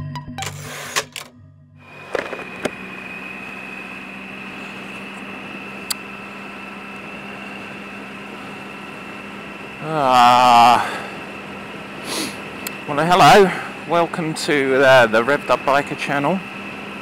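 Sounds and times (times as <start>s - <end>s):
high whine: 0.0s - 17.0s
motorcycle engine running: 1.8s - 17.0s
wind and road noise: 1.9s - 9.8s.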